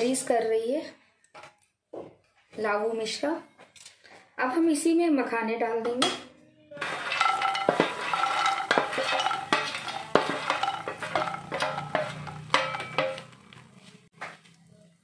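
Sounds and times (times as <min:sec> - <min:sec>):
nuts tumbling from steel tray: 0:06.8 - 0:13.5.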